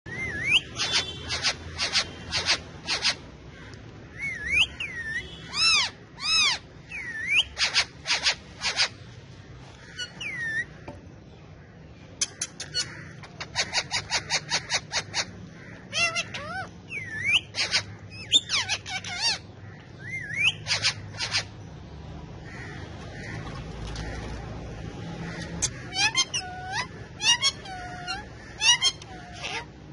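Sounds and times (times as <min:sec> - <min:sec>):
parakeets screeching and whistling: 0:00.1 - 0:03.3, 0:04.1 - 0:09.0, 0:09.8 - 0:10.8, 0:12.6 - 0:21.6, 0:24.9 - 0:29.8.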